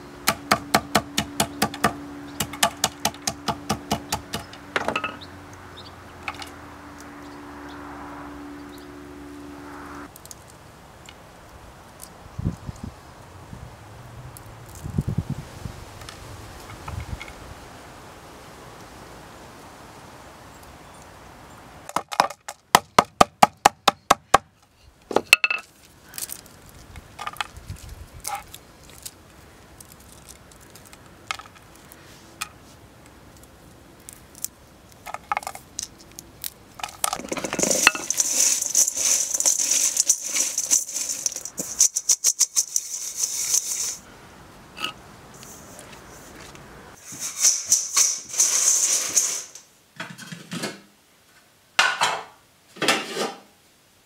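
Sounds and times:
dried plant pieces snapping: 25.8 - 32.0, 33.3 - 42.2
dry pieces rattling into steel bowl: 36.8 - 44.0, 47.0 - 49.6.

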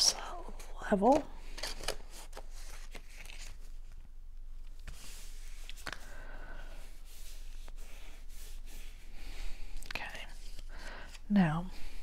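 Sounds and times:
soft paper rustling: 0.0 - 6.2, 9.6 - 12.0.

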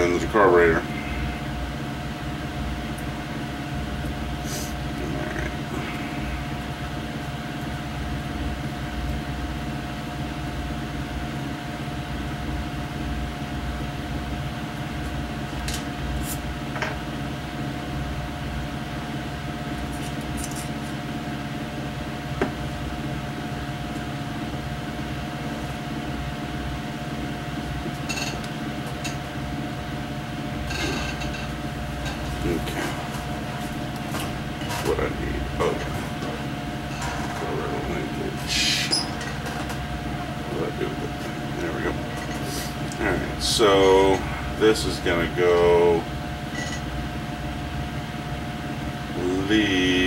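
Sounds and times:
electric fan humming: 0.0 - 50.0.

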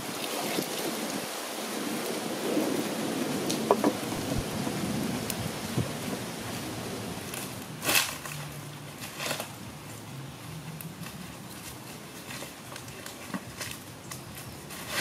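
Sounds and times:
wood fire crackling: 0.0 - 15.0.

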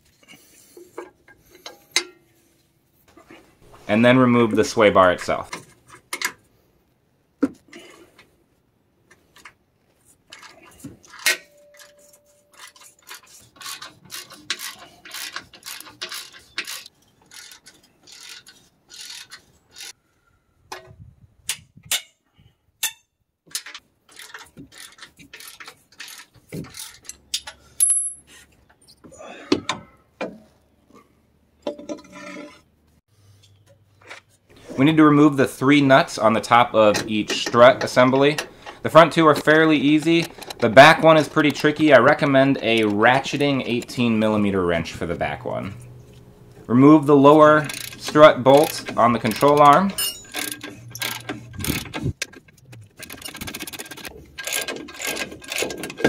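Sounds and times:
hand ratchet clicking: 12.5 - 20.0, 47.5 - 52.3, 53.0 - 56.0
metallic knocks and clanks: 47.7 - 56.0.

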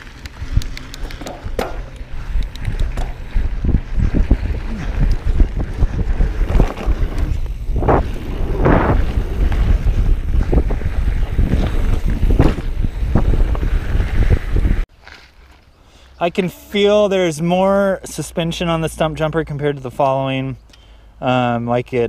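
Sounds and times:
wind buffeting microphone: 0.0 - 14.9
bike knocking and rattling: 0.0 - 15.6.

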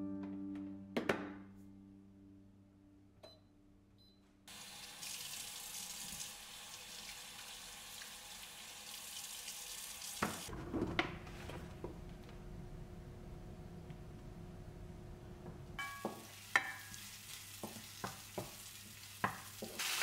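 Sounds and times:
tap running into a sink: 10.2 - 11.1.

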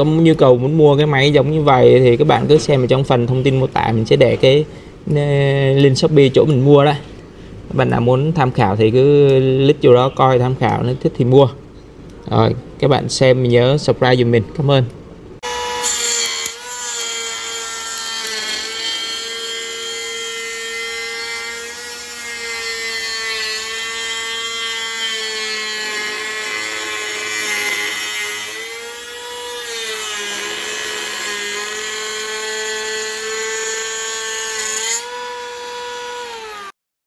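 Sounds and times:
electric planer whining on wood: 35.0 - 36.7.

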